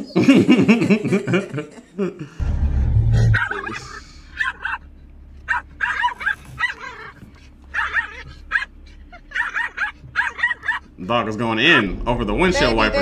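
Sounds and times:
small dog yapping: 0:03.4 - 0:11.0.

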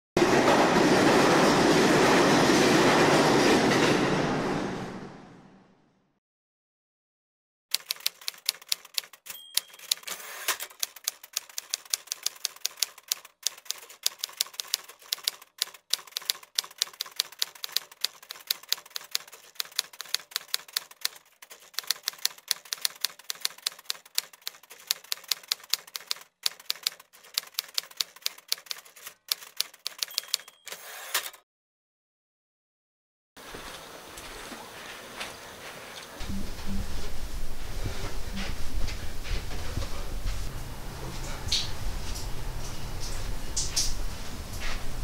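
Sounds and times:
typewriter keys clacking: 0:07.7 - 0:30.8
typewriter bell ring: 0:07.8 - 0:11.1, 0:29.3 - 0:31.4.

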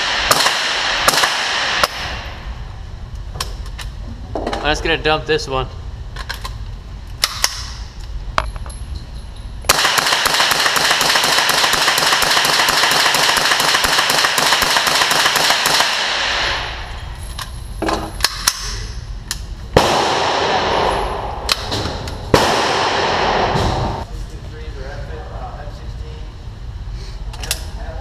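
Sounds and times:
rifle shots echoing indoors: 0:00.0 - 0:02.5, 0:09.7 - 0:16.9, 0:19.8 - 0:24.0.

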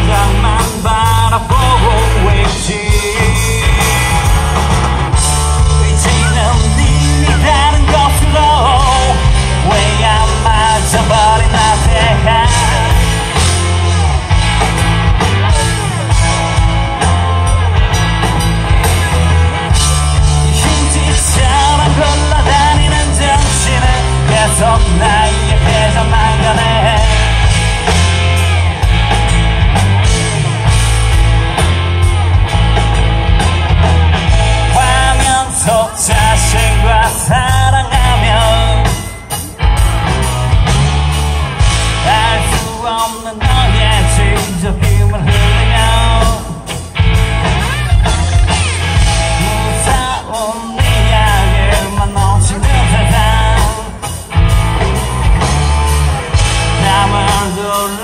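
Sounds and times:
person singing lead vocal: 0:00.0 - 0:14.3, 0:18.8 - 0:28.5, 0:34.2 - 0:39.7, 0:41.8 - 0:47.0, 0:47.8 - 0:58.0
rock band playing: 0:00.0 - 0:58.0.

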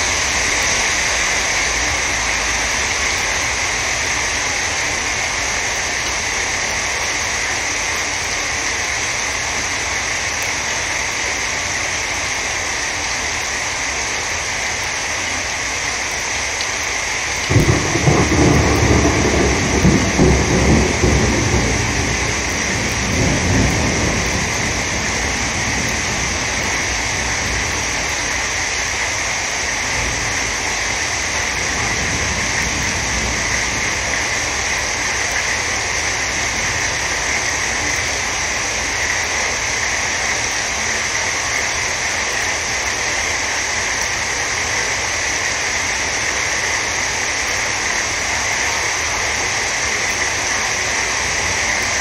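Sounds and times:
heavy rain on flooded street: 0:00.0 - 0:52.0.

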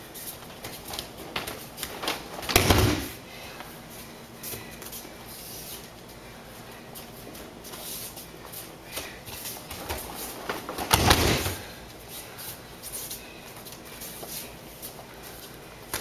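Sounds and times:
bare footfalls on mat: 0:00.6 - 0:03.2, 0:09.3 - 0:11.7
body thudding onto mat: 0:02.4 - 0:03.2, 0:10.7 - 0:11.6.

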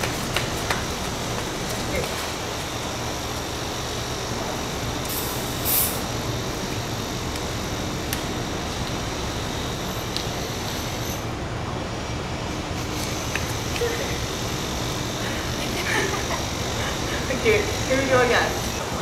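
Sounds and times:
rumble and hiss: 0:00.0 - 0:19.0
short loud hiss: 0:05.1 - 0:06.0.

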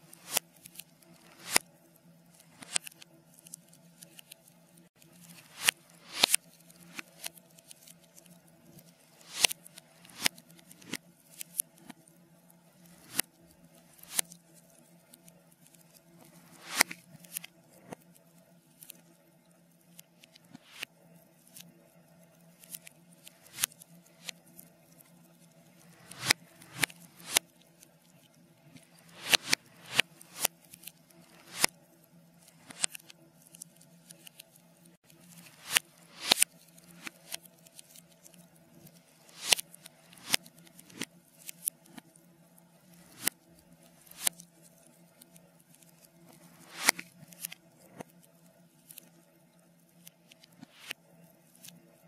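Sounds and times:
burning logs crackling reversed: 0:00.0 - 0:01.7, 0:05.0 - 0:12.1, 0:12.7 - 0:15.0, 0:15.6 - 0:18.0, 0:22.6 - 0:27.5, 0:28.1 - 0:33.2, 0:35.2 - 0:42.0.

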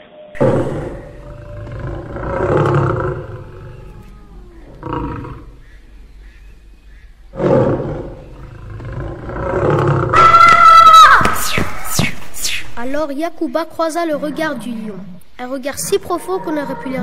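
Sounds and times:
lion roaring: 0:00.4 - 0:06.6, 0:07.2 - 0:10.4.

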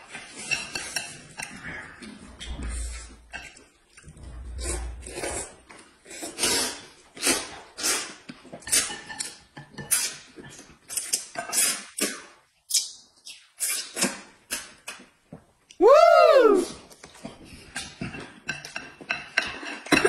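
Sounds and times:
people slurping noodles: 0:00.1 - 0:08.9.

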